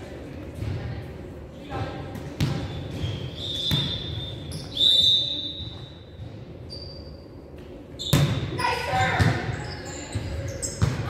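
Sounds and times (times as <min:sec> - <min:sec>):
basketball bouncing thuds: 0:02.2 - 0:03.9
shoe squeal: 0:02.6 - 0:11.0.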